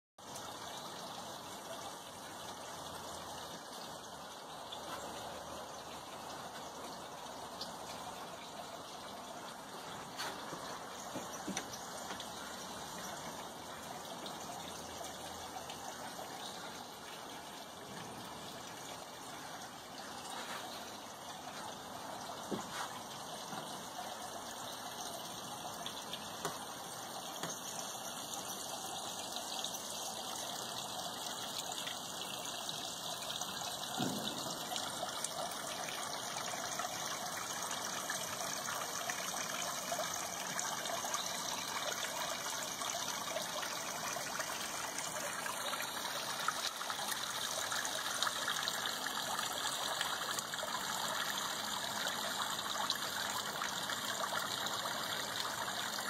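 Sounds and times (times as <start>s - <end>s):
fountain water trickling: 0.2s - 56.0s.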